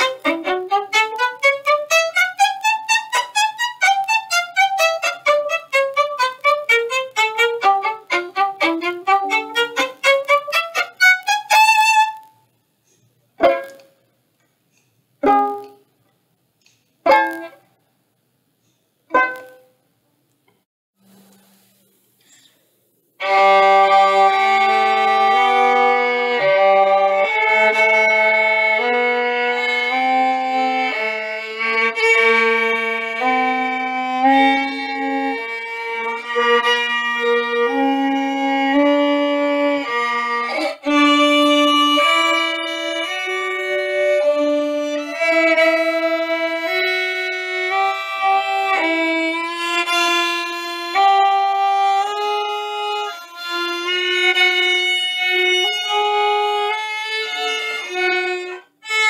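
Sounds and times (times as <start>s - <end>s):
solo violin bowed notes: 0.0s - 12.4s, 23.2s - 59.0s.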